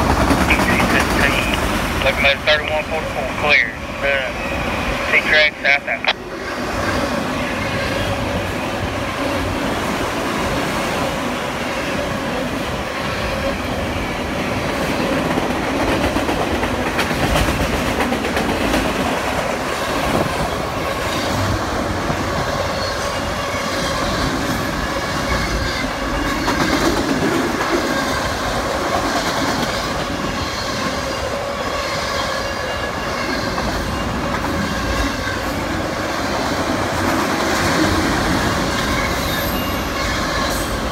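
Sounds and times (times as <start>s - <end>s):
freight train wheels clattering: 14.6s - 22.2s.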